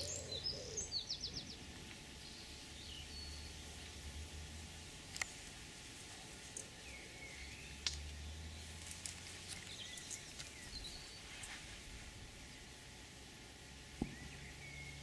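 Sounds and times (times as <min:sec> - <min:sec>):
bird chirps: 0:00.0 - 0:03.9, 0:06.6 - 0:11.6, 0:14.0 - 0:15.0.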